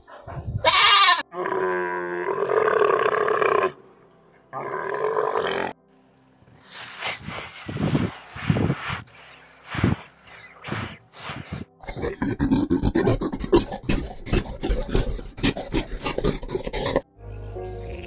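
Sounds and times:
snake hissing: 6.6s - 12.0s.

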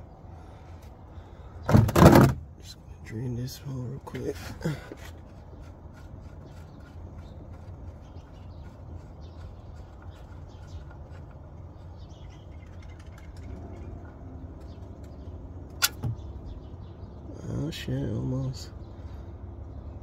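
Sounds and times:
sharp click: 15.7s - 16.2s.

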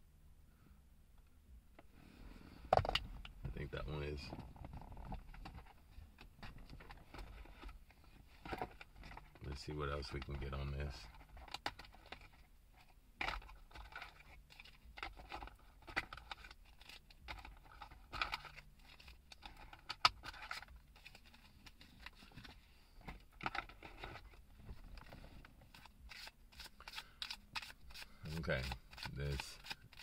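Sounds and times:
cards being shuffled: 23.4s - 30.0s.

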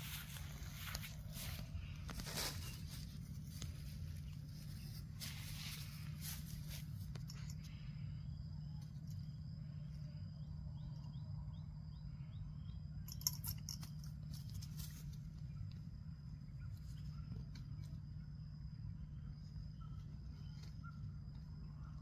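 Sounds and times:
small bird chirping: 0.0s - 22.0s
steady low rumble: 0.0s - 22.0s.

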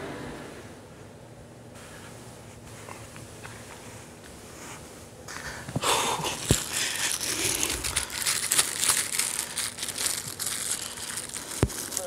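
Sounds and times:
wrapper crinkling in hands: 6.2s - 12.0s.

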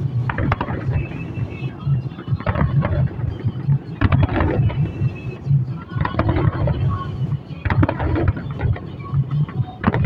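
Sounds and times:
firework shells bursting: 0.3s - 1.2s, 2.4s - 5.0s, 6.0s - 6.8s, 7.7s - 8.9s.

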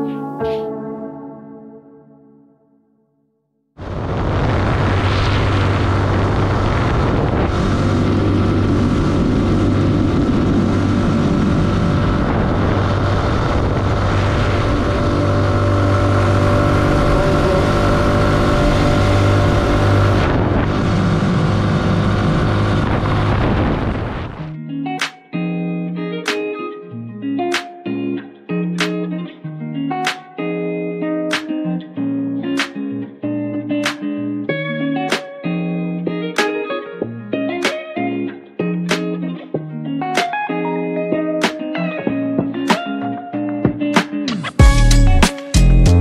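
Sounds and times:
road noise: 3.8s - 24.4s
wind noise: 3.8s - 24.5s
motorcycle engine running: 7.5s - 24.2s.

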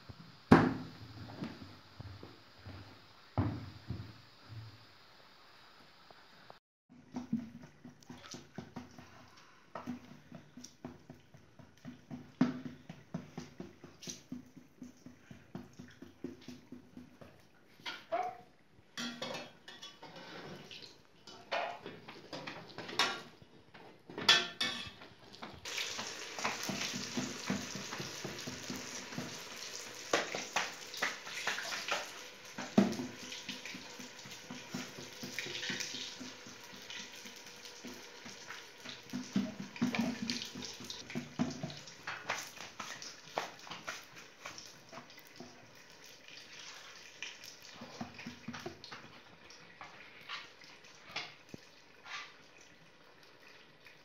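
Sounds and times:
flatbreads sizzling in hot oil: 0.0s - 6.6s, 24.2s - 54.0s
pots and utensils clattering: 17.7s - 18.4s, 19.0s - 23.4s, 24.1s - 45.5s.

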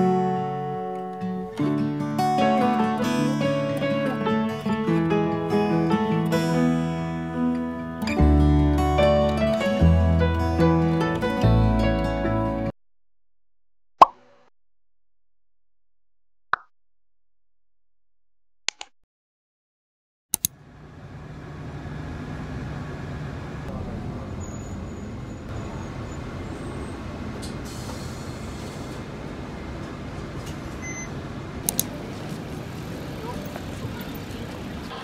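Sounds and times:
clicks: 18.7s - 19.0s
bus interior engine rumble: 20.5s - 35.0s.

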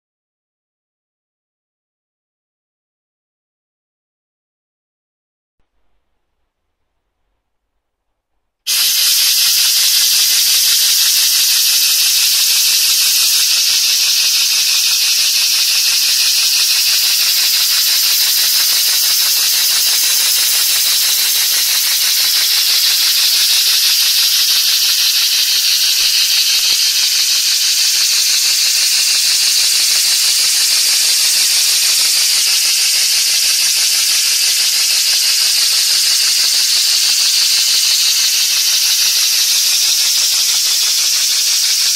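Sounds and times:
air hissing from engine cylinder: 8.7s - 41.9s.

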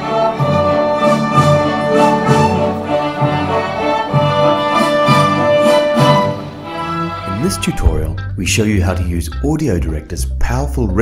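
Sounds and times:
violins bowing sustained passage: 0.0s - 8.2s
orchestra playing: 0.0s - 9.2s.

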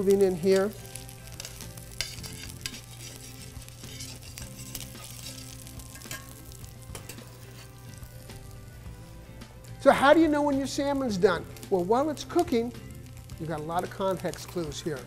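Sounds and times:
fish sizzling in a pan: 0.0s - 15.0s
metal spatula scraping a pan: 0.9s - 7.9s.

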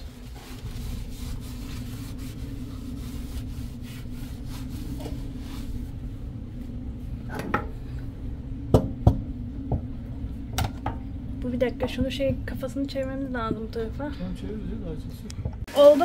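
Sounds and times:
steady low hum: 0.0s - 15.7s
sharp knocks: 8.7s - 9.9s.

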